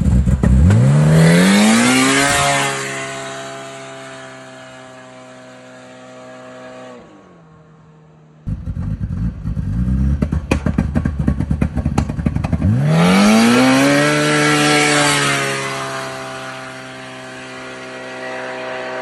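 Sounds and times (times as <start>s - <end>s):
off-road vehicle engine revving: 0.0s - 7.1s, 8.5s - 19.0s
engine crackling: 8.5s - 19.0s.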